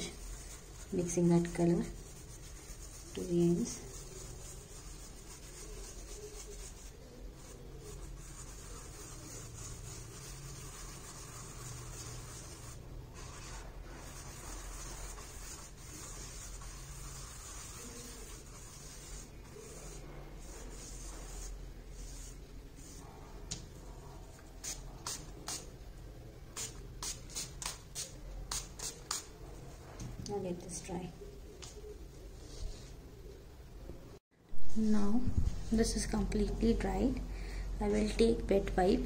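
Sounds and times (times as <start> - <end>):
brush scrubbing paint: 0.0 - 25.8, 26.6 - 29.8.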